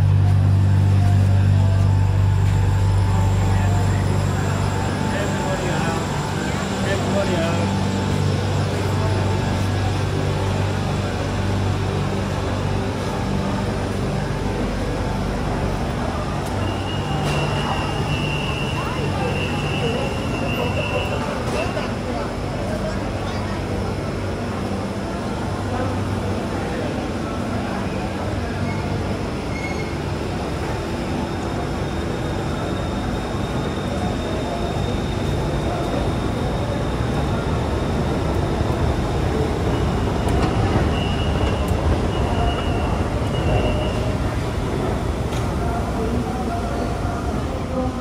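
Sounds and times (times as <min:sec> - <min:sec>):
steady high tone: 0:00.0 - 0:12.8
low hum and rumble: 0:00.0 - 0:16.6
crowd noise: 0:00.0 - 0:48.0
faint high whine: 0:00.3 - 0:11.2.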